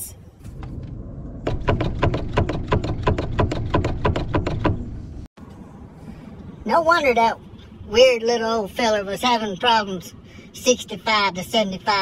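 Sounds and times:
low rumble: 0.1 - 2.0.

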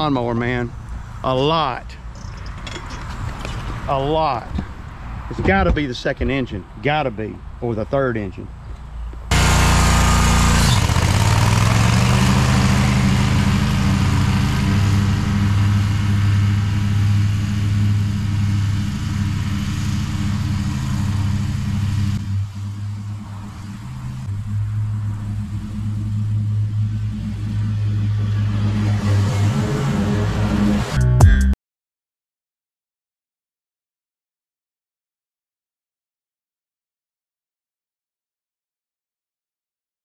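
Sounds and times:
blades cutting grass: 9.3 - 31.0
mower engine running: 9.3 - 31.0.

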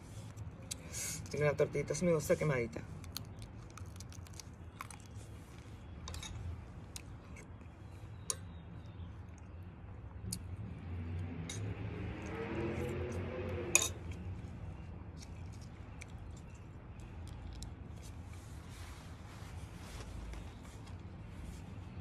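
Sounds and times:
rushing sound with low drone: 10.6 - 14.6.

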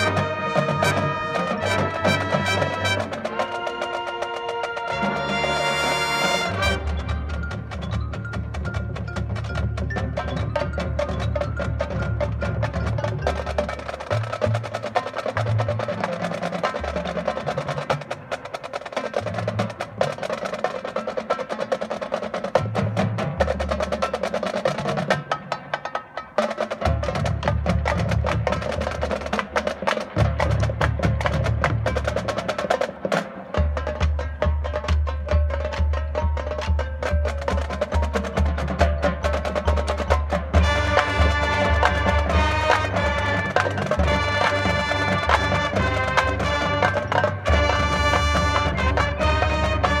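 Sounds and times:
drum strokes: 0.0 - 50.0
marching band playing: 0.0 - 50.0.

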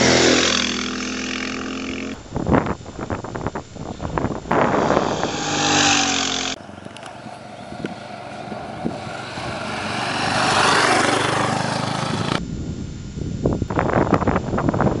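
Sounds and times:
motorcycle passing by: 0.0 - 2.2, 4.1 - 12.4
motorcycle engine: 0.0 - 12.6.

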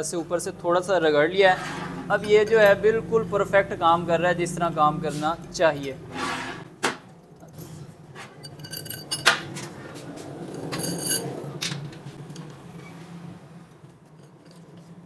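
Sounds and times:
metal parts clinking: 8.4 - 9.4, 10.7 - 11.3.

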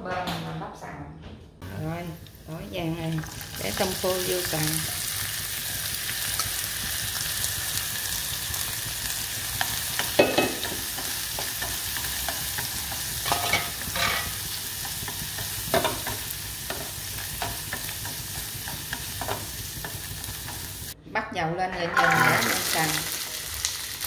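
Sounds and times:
food sizzling in oil: 2.0 - 21.0, 21.9 - 24.0
chopsticks scraping and clacking on pan: 9.6 - 20.7.

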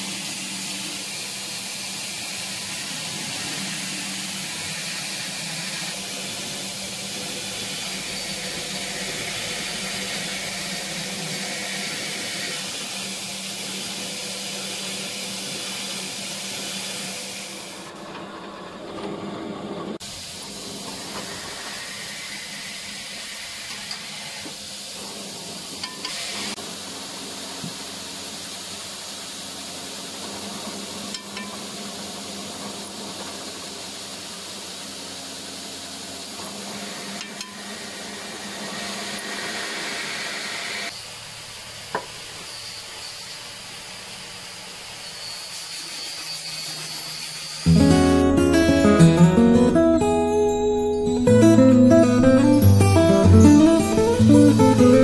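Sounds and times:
motor hum: 0.0 - 22.4
belt grinder grinding blade: 2.1 - 15.0.

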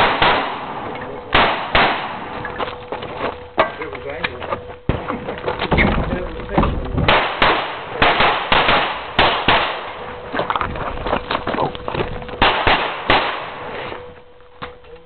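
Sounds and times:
pistol shots: 0.0 - 2.5, 7.1 - 10.2, 12.4 - 14.1.

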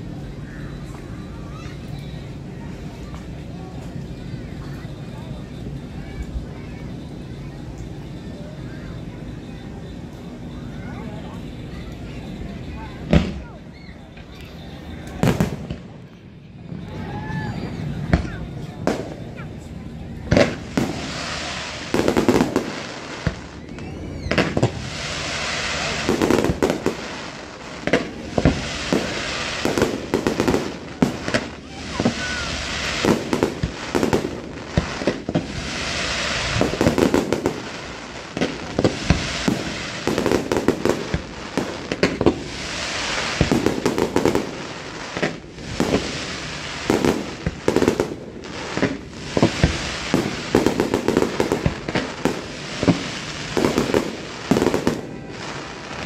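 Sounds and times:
crackling firework stars: 0.0 - 56.0
firework shell bursts: 20.3 - 55.8.

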